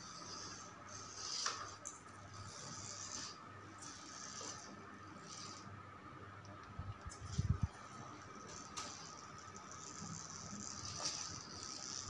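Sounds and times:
toy car motors whirring: 0:00.0 - 0:05.7, 0:08.5 - 0:12.0
steady low hum: 0:00.0 - 0:12.0.

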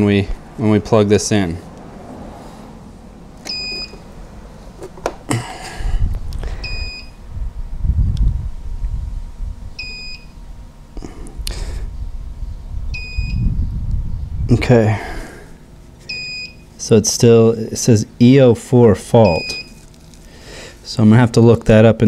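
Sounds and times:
low rumbling: 0:00.0 - 0:15.8
high two-tone alarm beeps: 0:03.5 - 0:04.0, 0:06.6 - 0:07.2, 0:09.8 - 0:10.3, 0:12.9 - 0:13.5, 0:16.1 - 0:16.7, 0:19.2 - 0:19.8.

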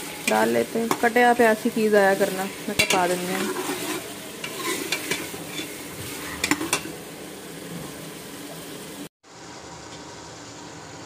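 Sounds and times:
food sizzling in oil: 0:00.0 - 0:09.1
metal spoon scraping pot: 0:02.8 - 0:06.9.

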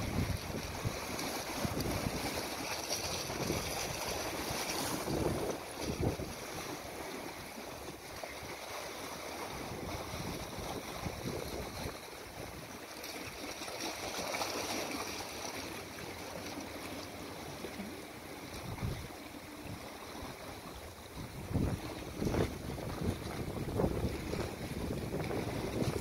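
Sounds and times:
wind buffeting microphone: 0:00.0 - 0:02.4, 0:03.1 - 0:06.5, 0:09.5 - 0:12.6, 0:18.5 - 0:19.9, 0:21.0 - 0:26.0
waves splashing on rocks: 0:00.0 - 0:07.6, 0:21.2 - 0:26.0.

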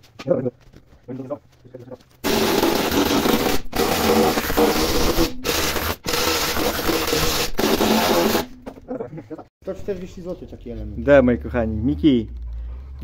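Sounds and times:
power tool cutting sheet metal: 0:02.2 - 0:08.6.

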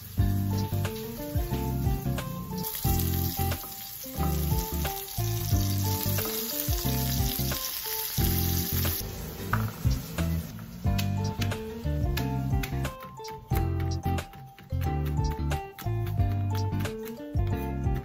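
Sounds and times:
fish sizzling in oil: 0:00.0 - 0:10.9
background music with bass line: 0:00.0 - 0:18.0.

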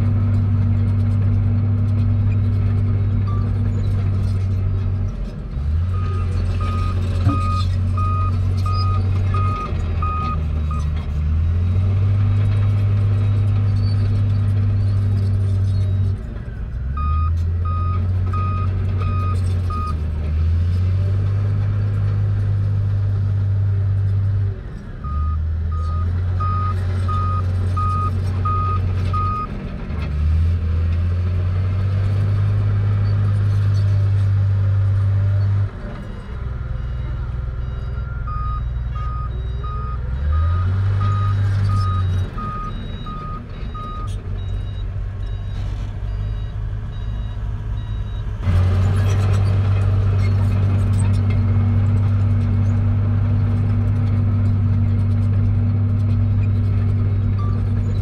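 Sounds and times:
bulldozer diesel engine running: 0:00.0 - 0:58.0
reversing alarm beeping: 0:36.8 - 0:48.3.

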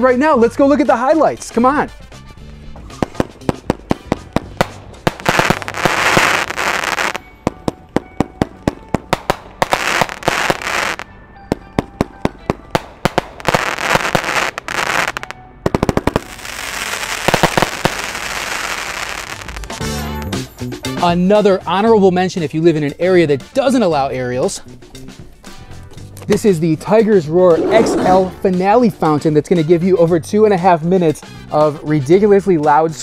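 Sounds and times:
crackling firework bursts: 0:03.0 - 0:07.2, 0:09.1 - 0:11.0, 0:12.8 - 0:19.8.

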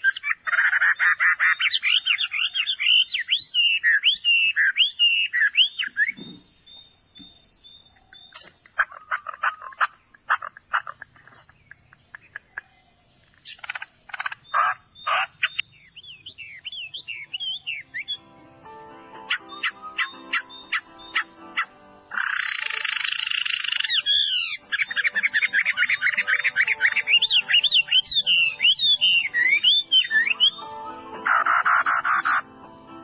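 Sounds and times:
songbirds singing: 0:00.0 - 0:33.0
steady high hiss: 0:15.4 - 0:33.0.

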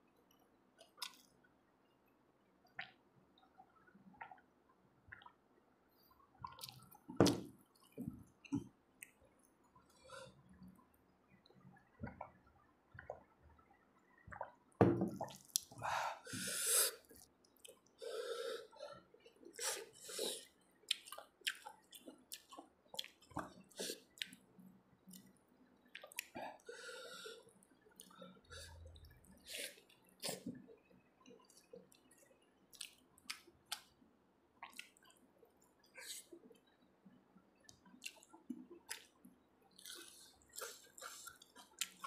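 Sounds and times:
wet chewing and lip smacks: 0:20.9 - 0:24.4, 0:32.7 - 0:33.9, 0:34.6 - 0:35.2, 0:37.7 - 0:42.0
breaths and gulps: 0:37.6 - 0:42.0.

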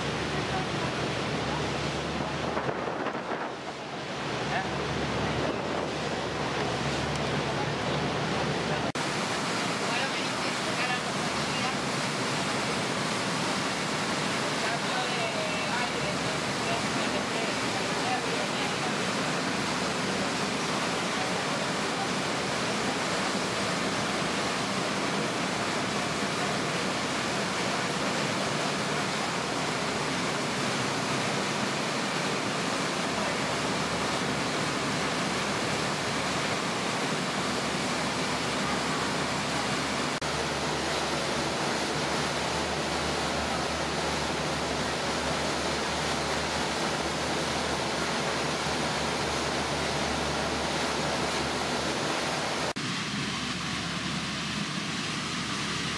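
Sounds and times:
strong wind: 0:00.0 - 0:09.6
boat wake water rushing: 0:00.0 - 0:55.9.

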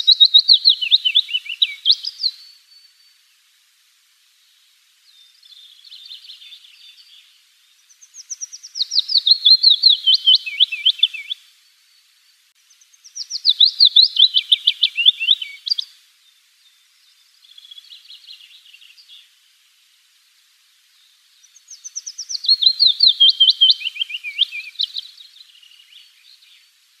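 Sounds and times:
willow warbler singing: 0:00.0 - 0:03.3, 0:05.0 - 0:19.5, 0:20.8 - 0:26.9.

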